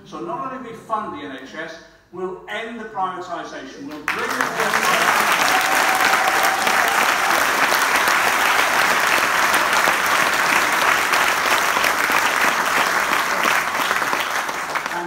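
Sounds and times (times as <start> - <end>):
audience applauding: 4.1 - 15.0.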